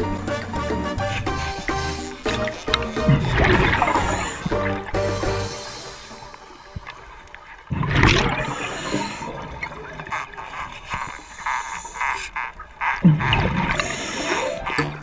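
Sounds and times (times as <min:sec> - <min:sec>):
underwater bubbling of exhaled air: 0:07.6 - 0:11.4.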